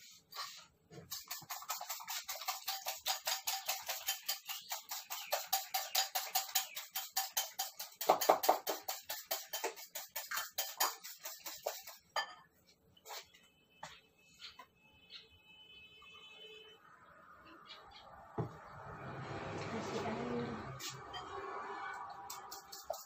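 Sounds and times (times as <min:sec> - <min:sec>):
eggs beaten in a bowl: 0:00.2 - 0:12.2, 0:22.1 - 0:23.0.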